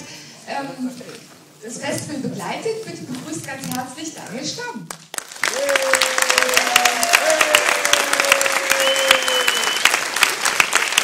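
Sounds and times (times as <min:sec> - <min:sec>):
audience clapping: 0:04.9 - 0:11.0
long held calls: 0:08.4 - 0:09.9.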